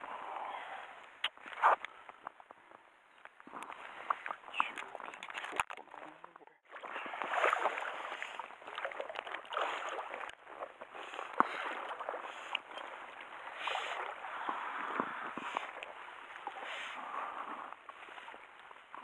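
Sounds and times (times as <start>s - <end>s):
clicks and knocks of gear: 3.2s - 6.2s
water splashing against boat: 3.5s - 19.0s.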